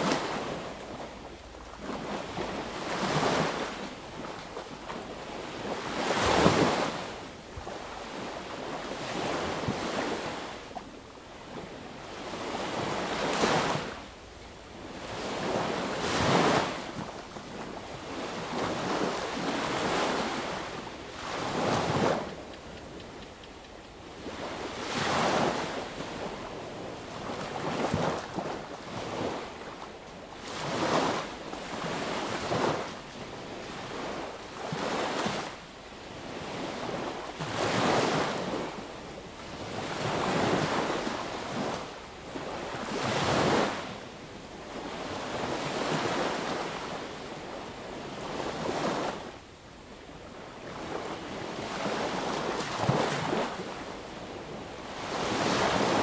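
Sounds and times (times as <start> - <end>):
sea waves breaking on beach: 0.0 - 10.6, 14.9 - 23.1, 24.1 - 35.6, 36.2 - 38.8, 39.5 - 44.0, 50.6 - 56.0.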